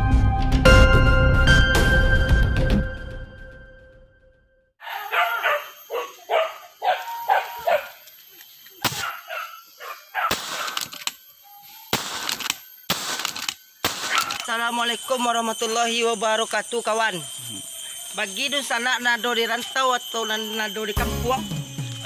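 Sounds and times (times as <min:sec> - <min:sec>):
dogs barking: 0:04.8 - 0:08.0, 0:08.9 - 0:10.9, 0:14.0 - 0:14.5
sharp click: 0:10.3 - 0:11.2, 0:11.9 - 0:14.5.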